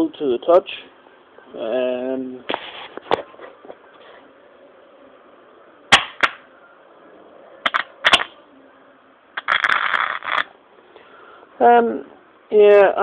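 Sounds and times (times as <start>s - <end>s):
dense crackling: 9.4s - 10.5s.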